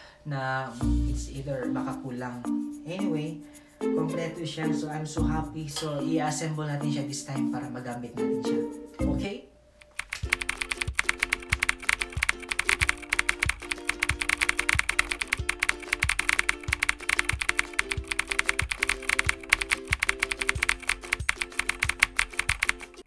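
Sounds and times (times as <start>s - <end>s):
background music with steady beat: 0.7s - 23.0s
keyboard typing clicks: 9.8s - 23.0s.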